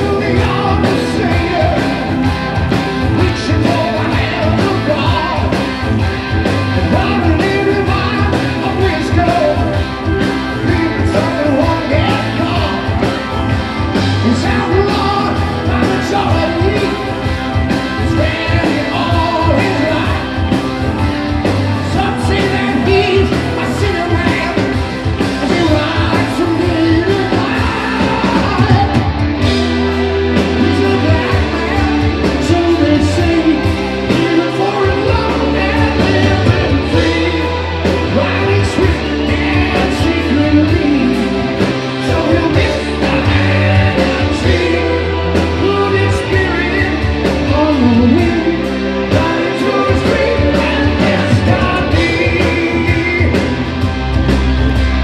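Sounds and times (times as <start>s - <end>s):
man singing: 0.0s - 53.9s
rock band playing: 0.0s - 55.0s.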